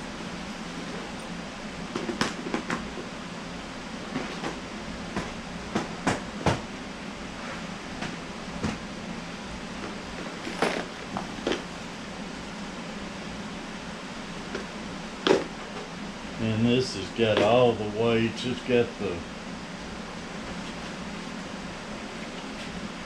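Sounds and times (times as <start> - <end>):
low hum: 0.0 - 2.0.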